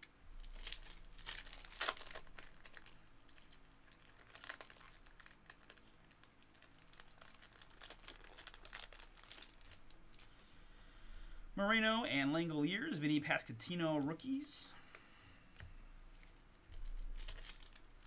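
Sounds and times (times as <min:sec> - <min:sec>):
foil wrapper tearing and crinkling: 0:00.4 - 0:10.3, 0:16.2 - 0:18.0.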